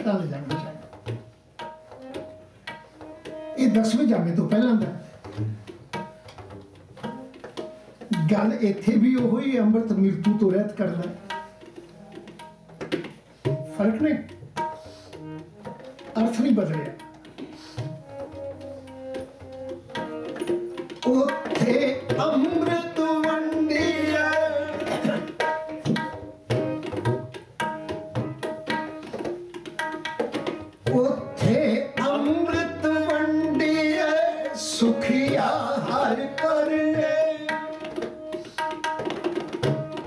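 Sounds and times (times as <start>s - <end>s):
tabla strokes: 0.0s - 40.0s
man singing: 21.0s - 25.4s, 30.9s - 38.0s
harmonium chords: 30.4s - 38.5s.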